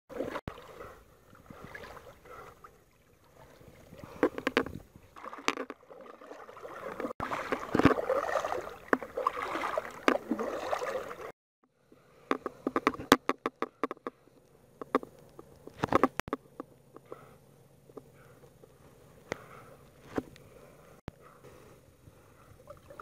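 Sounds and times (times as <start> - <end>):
water lapping and splashing: 0.1 - 11.4, 22.1 - 23.0.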